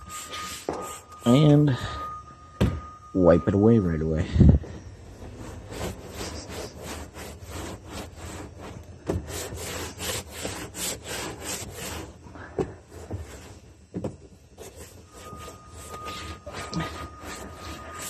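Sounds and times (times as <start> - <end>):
rag rubbing on plastic: 5.2 - 12.2, 12.9 - 13.6, 14.6 - 18.0.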